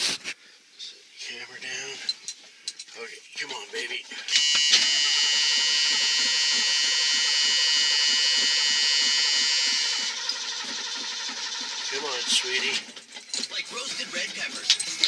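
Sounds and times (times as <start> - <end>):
starter motor cranking engine: 3.6 - 15.0.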